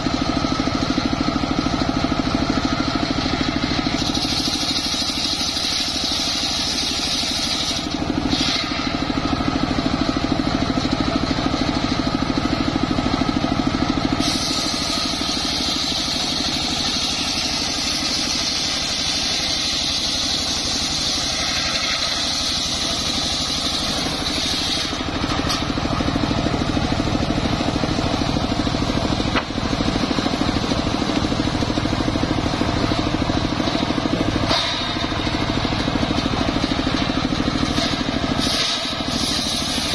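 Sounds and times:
circular saw ripping log: 0:03.9 - 0:09.1, 0:14.2 - 0:25.8, 0:36.7 - 0:39.9.

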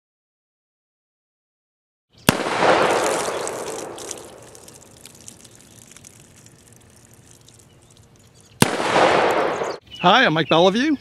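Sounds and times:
revolver shot with rumbling echo: 0:02.3 - 0:04.5, 0:08.6 - 0:09.8.

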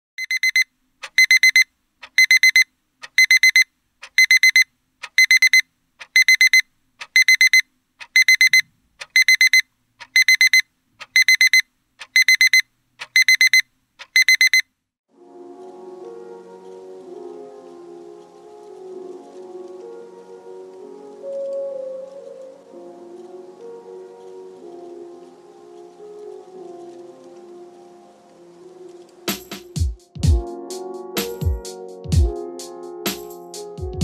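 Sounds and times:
alarm clock beeping: 0:00.2 - 0:14.6
soft music: 0:15.1 - 0:34.0.

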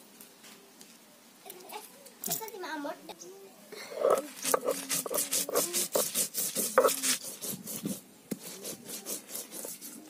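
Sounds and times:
stone-on-stone grinding scrapes: 0:03.9 - 0:10.0.

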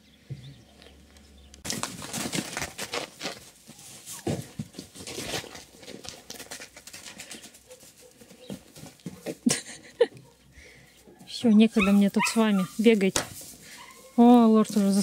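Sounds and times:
hoof thuds on snow: 0:01.7 - 0:09.5.

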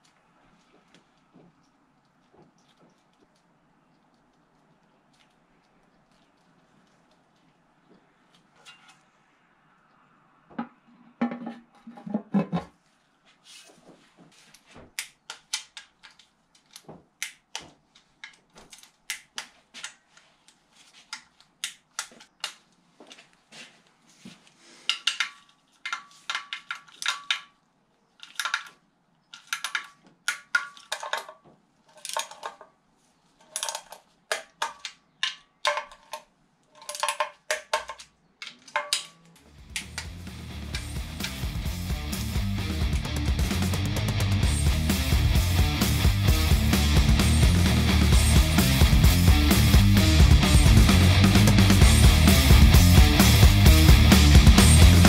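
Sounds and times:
metallic clicks and taps of bolts: 0:24.9 - 0:27.6, 0:28.2 - 0:31.4.

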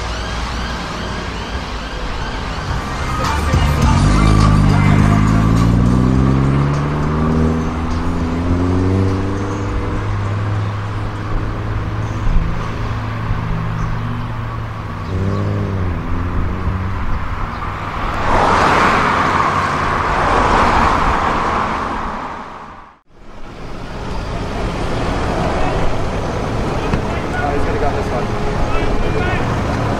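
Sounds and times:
low engine hum: 0:00.0 - 0:20.6
rush of passing traffic: 0:00.0 - 0:29.9.

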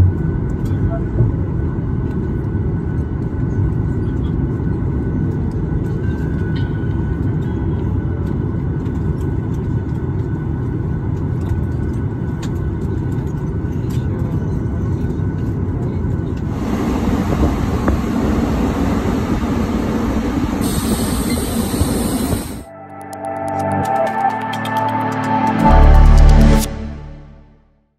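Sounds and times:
jet engines low rumble: 0:00.0 - 0:22.8
hissy outdoor noise: 0:16.6 - 0:22.6.

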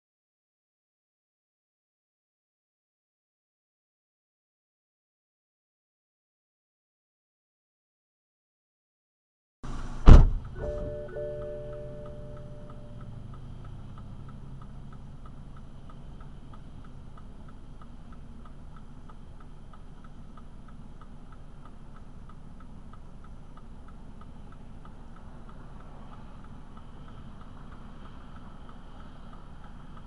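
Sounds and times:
engine and road rumble: 0:09.6 - 0:30.0
turn signal ticking: 0:10.4 - 0:30.0.

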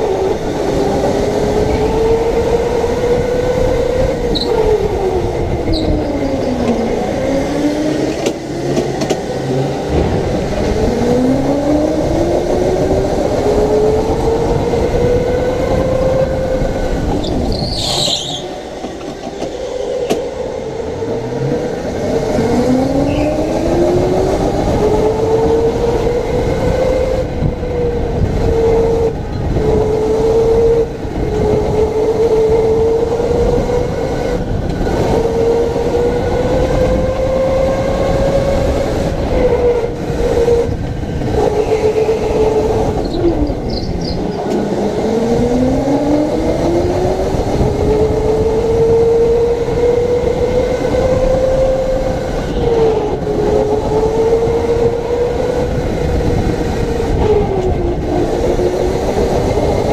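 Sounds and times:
electric go-kart motor whining: 0:00.0 - 0:59.9
high squeal: 0:05.6 - 0:06.6, 0:17.2 - 0:18.7, 0:23.0 - 0:23.7, 0:41.4 - 0:44.4.

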